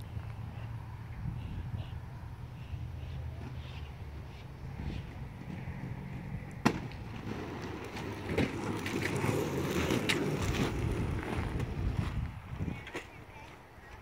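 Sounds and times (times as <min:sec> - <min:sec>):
skate wheels rolling on asphalt: 0:03.0 - 0:14.0
inline skates landing smack: 0:06.6 - 0:09.2.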